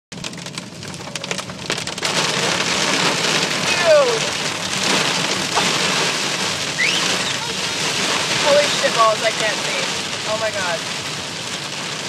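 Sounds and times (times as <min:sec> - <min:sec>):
heavy rain on car windshield: 0:00.1 - 0:12.0.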